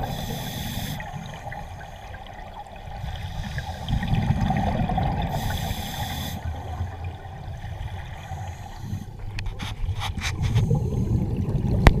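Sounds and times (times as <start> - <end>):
scuba exhaust bubbles hissing: 0.0 - 9.3, 10.4 - 12.0
low underwater rumble: 1.0 - 5.6.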